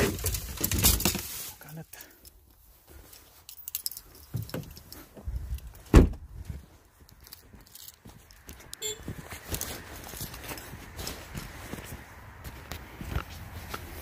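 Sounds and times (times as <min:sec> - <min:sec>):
fishing gear clinking and rattling: 0:00.0 - 0:05.8, 0:07.0 - 0:08.5
car trunk lid thump: 0:05.9 - 0:06.2.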